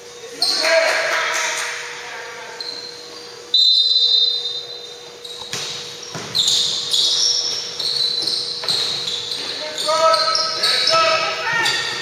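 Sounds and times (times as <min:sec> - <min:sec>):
sneakers squeaking: 0:00.0 - 0:01.1, 0:01.9 - 0:12.0
basketball bouncing in a hall: 0:03.7 - 0:12.0.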